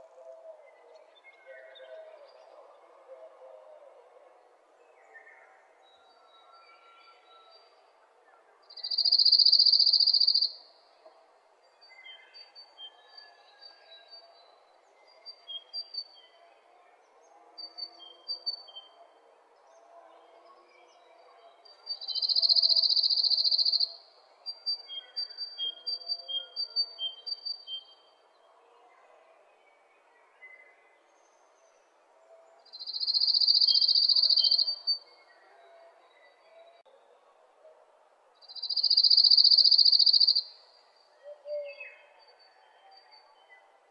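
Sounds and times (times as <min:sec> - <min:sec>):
bird high chirps: 0:08.8 - 0:10.6, 0:21.9 - 0:24.0, 0:32.7 - 0:35.0, 0:38.5 - 0:40.4.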